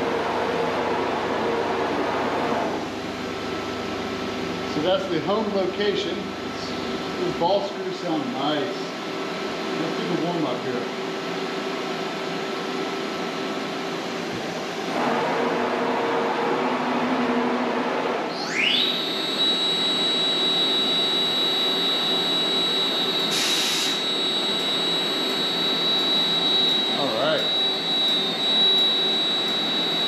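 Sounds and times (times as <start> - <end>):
spindle high-pitched whine: 0.0 - 30.0
machine noise: 14.8 - 30.0.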